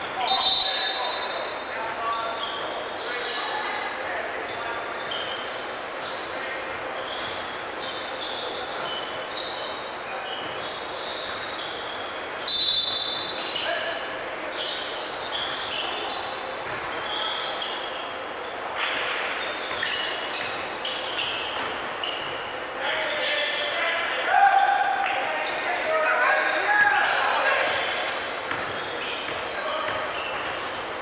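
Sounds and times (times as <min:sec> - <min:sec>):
players' voices: 0:00.0 - 0:31.0
sneakers squeaking on floor: 0:00.0 - 0:31.0
basketball bouncing: 0:28.4 - 0:30.7.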